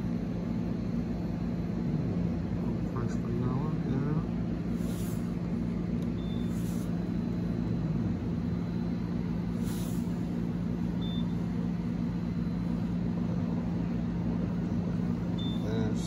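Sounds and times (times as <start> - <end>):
low machine hum: 0.0 - 16.0
coffee machine button beep: 11.0 - 11.4, 15.4 - 15.8.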